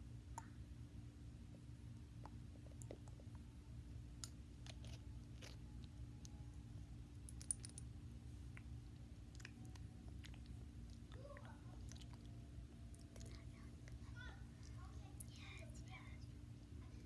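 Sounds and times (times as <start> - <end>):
steady low hum: 0.0 - 17.0
small objects clicking and tapping: 7.2 - 7.9.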